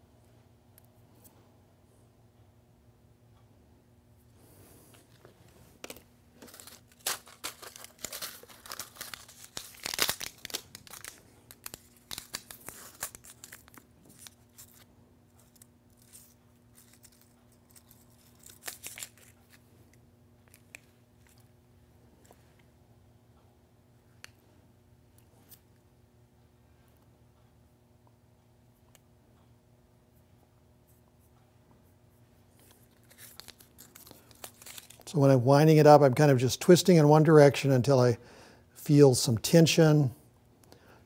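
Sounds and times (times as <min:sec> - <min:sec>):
packaging crinkling and tearing: 0:05.8 - 0:19.6, 0:32.7 - 0:35.1.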